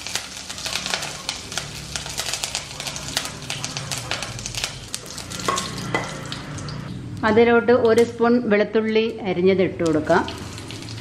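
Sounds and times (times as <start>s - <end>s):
spices crackling in hot oil: 0.0s - 6.9s, 9.7s - 11.0s
steady sizzle: 0.0s - 6.9s, 9.8s - 11.0s.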